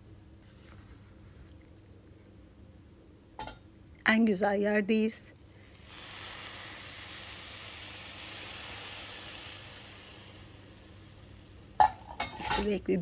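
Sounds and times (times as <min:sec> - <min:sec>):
syrup sizzling on hot cookies: 0:05.5 - 0:12.9.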